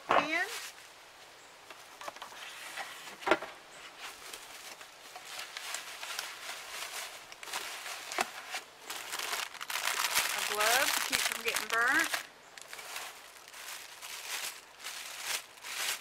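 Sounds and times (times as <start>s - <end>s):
bubble wrap crinkling: 4.3s - 16.0s.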